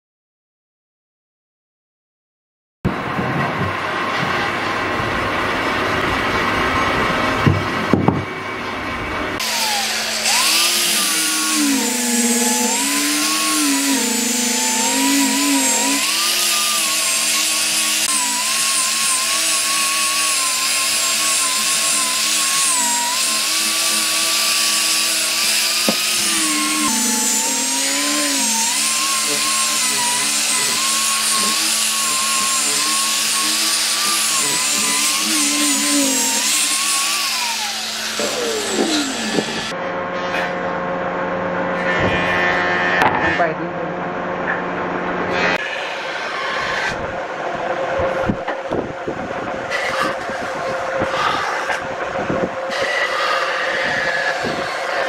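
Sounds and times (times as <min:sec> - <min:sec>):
angle grinder motor: 0:09.4 - 0:39.8, 0:45.2 - 0:55.0.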